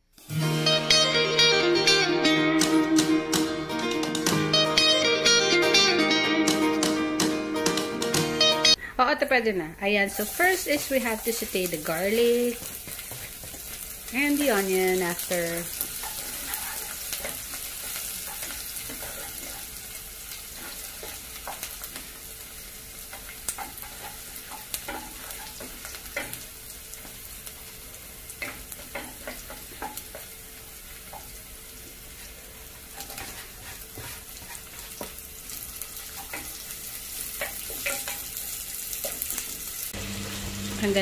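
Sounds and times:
garlic sizzling in hot oil: 9.9 - 41.0
spatula scraping and tapping pan: 12.5 - 13.8, 15.3 - 19.7, 20.5 - 22.1, 23.1 - 26.4, 28.4 - 30.3, 32.9 - 35.2, 36.0 - 39.5.

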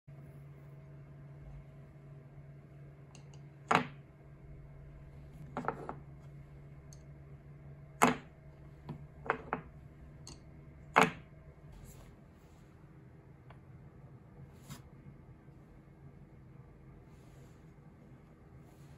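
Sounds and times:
steady low hum: 0.1 - 18.9
chopsticks tapping on workbench: 8.9 - 11.3.

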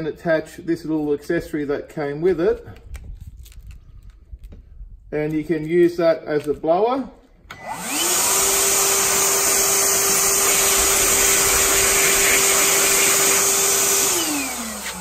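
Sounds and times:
vacuum blower motor whining: 7.5 - 15.0.

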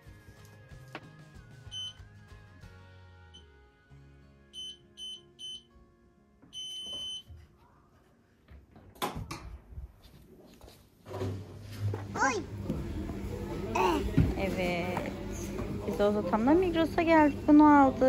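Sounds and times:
background music with held notes: 0.0 - 6.6
appliance beeper beeping: 1.7 - 2.0, 4.6 - 5.7, 6.5 - 7.3.

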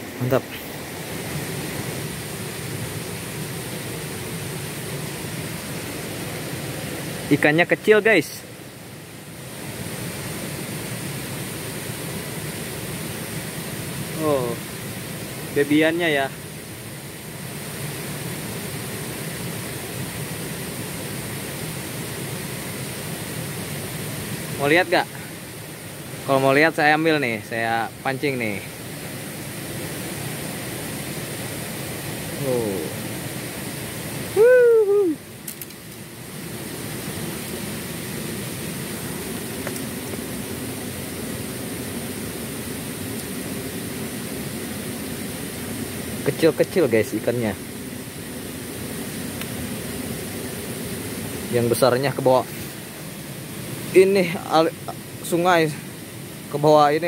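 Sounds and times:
stream running over stones: 0.0 - 34.4, 35.0 - 57.0
man exclaiming: 34.3 - 35.2.

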